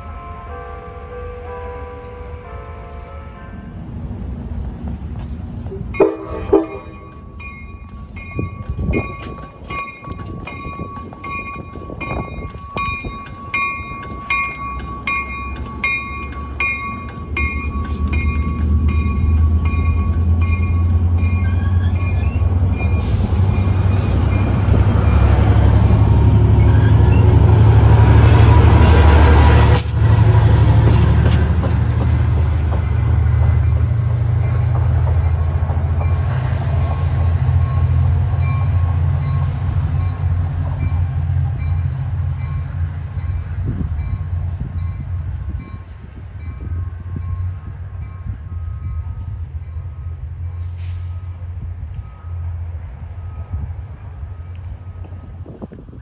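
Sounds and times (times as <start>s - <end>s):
diesel locomotive engine rumble: 0.0s - 56.0s
bell ringing: 6.0s - 23.1s.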